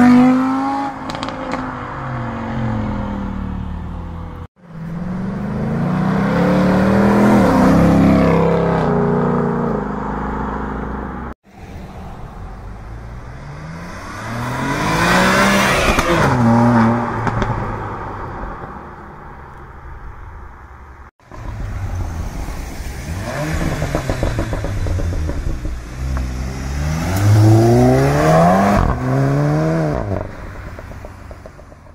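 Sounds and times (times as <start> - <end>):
cars accelerating with gear changes: 21.4 - 31.9.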